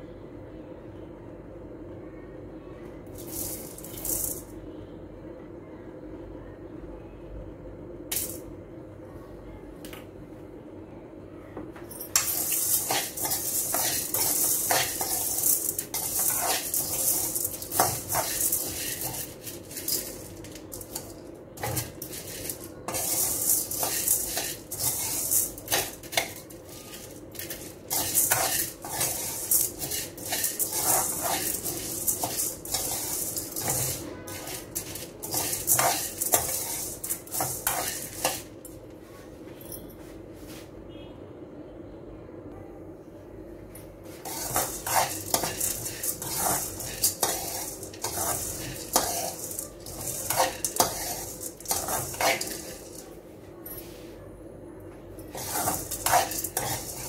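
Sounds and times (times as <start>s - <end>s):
spoon stirring dry lentils in pan: 12.1s - 38.6s, 44.2s - 53.2s, 55.2s - 57.0s.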